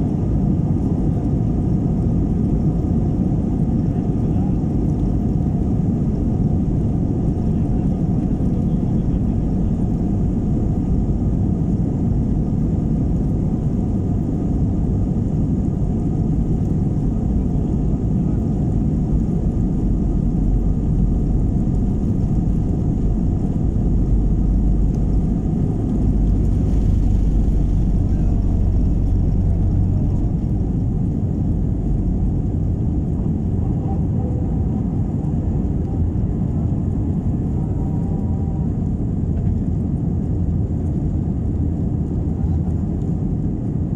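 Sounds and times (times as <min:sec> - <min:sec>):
jet engines roaring in cabin: 0:00.0 - 0:43.9.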